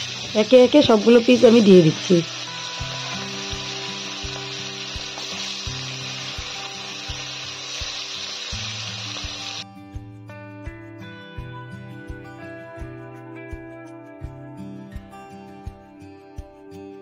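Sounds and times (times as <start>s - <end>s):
fish sizzling in hot oil: 0.0s - 9.6s
slow background music: 0.0s - 17.0s.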